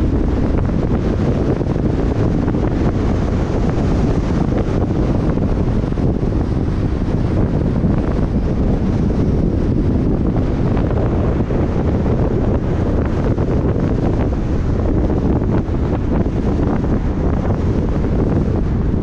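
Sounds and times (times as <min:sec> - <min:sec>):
car road noise: 0:00.0 - 0:19.0
wind buffeting microphone: 0:00.0 - 0:19.0.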